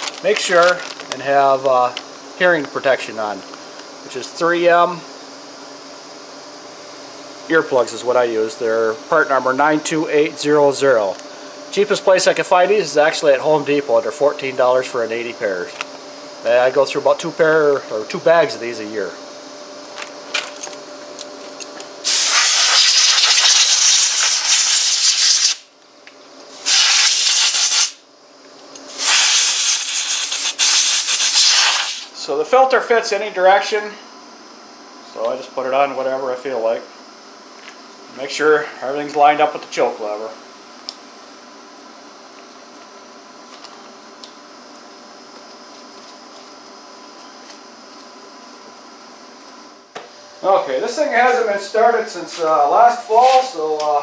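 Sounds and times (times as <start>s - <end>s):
steady background hiss: 0.0s - 54.0s
air blow gun hissing: 22.0s - 25.6s, 26.5s - 28.0s, 28.9s - 32.2s.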